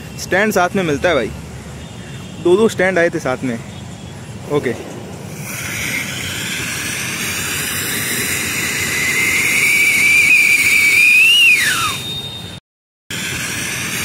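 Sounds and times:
firework spark jet hissing: 5.3s - 12.0s, 13.1s - 14.0s
firework siren whistle: 9.1s - 12.6s.

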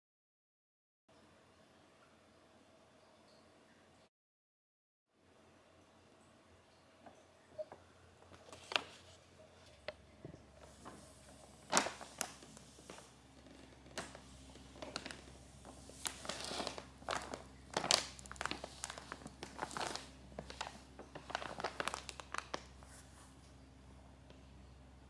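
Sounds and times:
paper bag crinkling: 8.2s - 10.0s, 10.6s - 23.4s.

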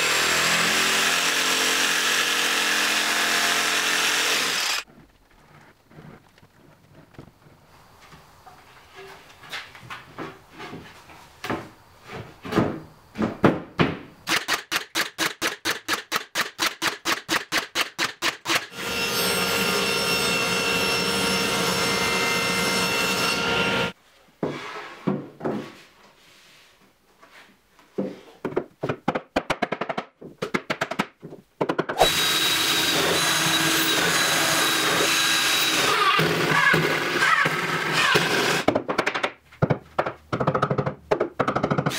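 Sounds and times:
table saw running: 0.0s - 4.8s
cordless drill driving screws: 1.2s - 4.8s
knocks of plywood panels: 10.2s - 14.2s, 28.0s - 32.0s, 38.6s - 41.9s.

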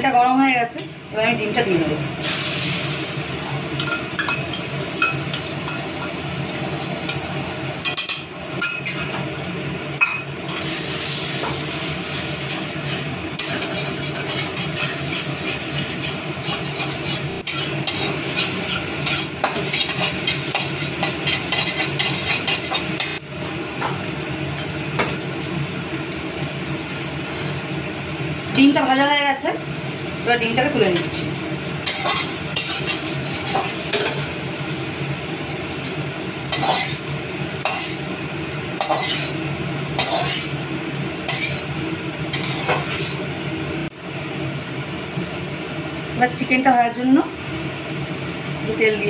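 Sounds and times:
eggs sizzling in oil: 0.0s - 49.0s
spatula scraping and tapping pan: 12.8s - 23.2s, 31.8s - 34.2s, 36.5s - 37.0s, 37.6s - 38.0s, 38.8s - 39.4s, 40.0s - 40.6s, 41.3s - 41.6s, 42.3s - 43.2s.

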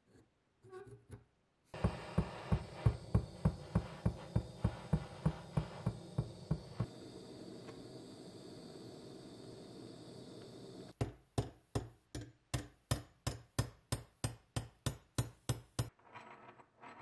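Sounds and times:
torch hissing: 1.8s - 11.0s.

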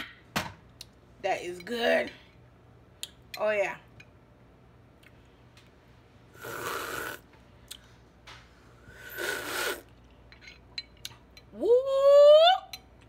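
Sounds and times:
slurping sips of hot tea: 6.4s - 7.2s, 8.8s - 9.9s.

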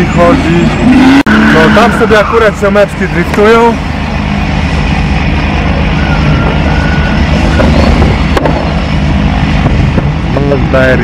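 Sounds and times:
car engines running: 0.0s - 11.0s
heavy low rumble: 0.0s - 11.0s
tyre squeal: 5.9s - 8.0s.

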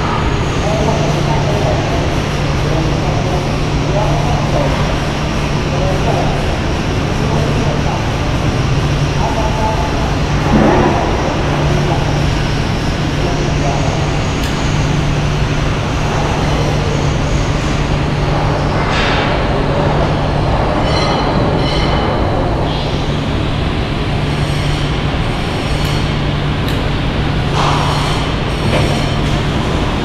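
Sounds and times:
machinery low hum: 0.0s - 30.0s
high metallic squeals: 20.8s - 23.2s.

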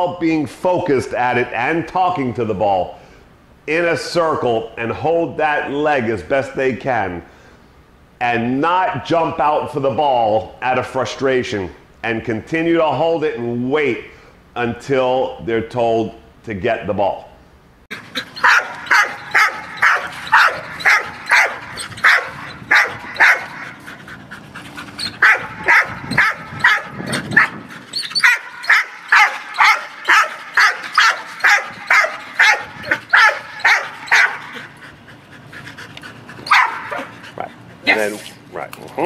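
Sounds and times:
dog barking and yelping: 17.9s - 38.2s.

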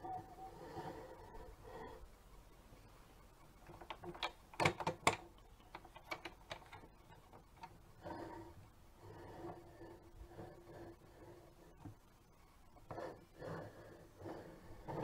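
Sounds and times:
plastic toy clicking on wood: 3.6s - 7.8s.

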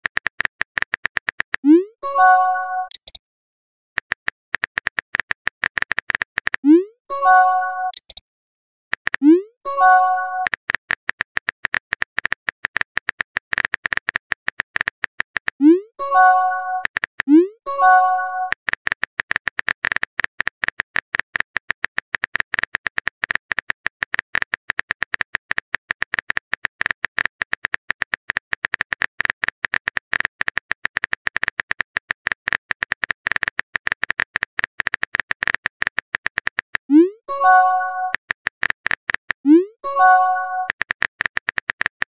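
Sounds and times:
smartphone keyboard clicks: 2.9s - 3.2s, 4.0s - 6.6s, 7.9s - 8.2s.

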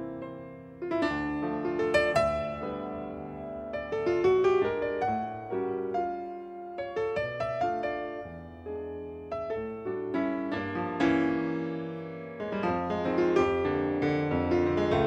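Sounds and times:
slow jazz piano: 0.0s - 15.0s.

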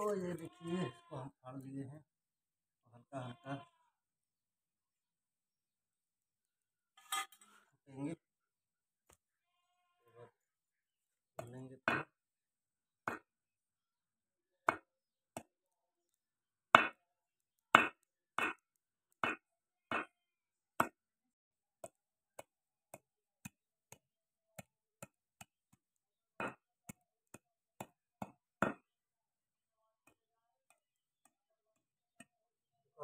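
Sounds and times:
machete chopping on wooden block: 11.4s - 12.1s, 13.1s - 13.3s, 16.8s - 17.0s, 17.8s - 18.6s, 19.2s - 20.1s, 27.3s - 28.9s.

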